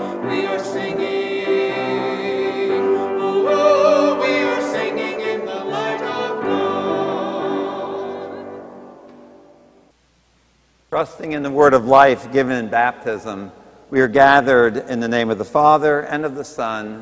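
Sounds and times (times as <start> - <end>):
man and woman singing: 0.0 - 8.6
grand piano accompaniment: 0.0 - 9.9.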